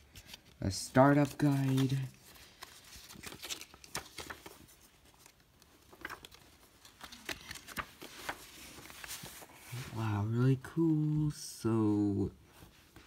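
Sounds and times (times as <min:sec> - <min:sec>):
paper and cardboard rustling: 0:00.0 - 0:10.1.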